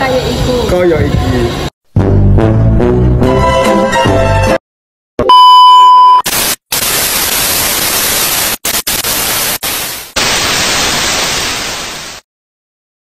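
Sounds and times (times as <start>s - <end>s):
high test tone beep: 5.2s - 6.3s
tv static hiss: 6.3s - 12.2s.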